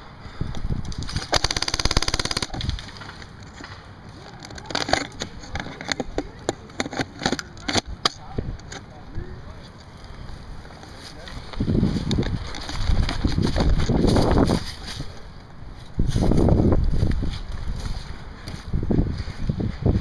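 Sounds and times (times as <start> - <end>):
sharp cracks and clicks: 0.8 - 8.9
airsoft gun full-auto burst: 1.2 - 2.8.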